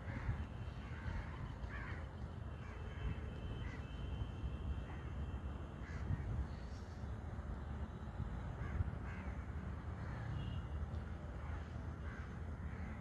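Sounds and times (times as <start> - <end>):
crows cawing: 0.0 - 3.0, 3.6 - 3.9, 5.8 - 6.3, 8.6 - 10.4, 11.4 - 13.0.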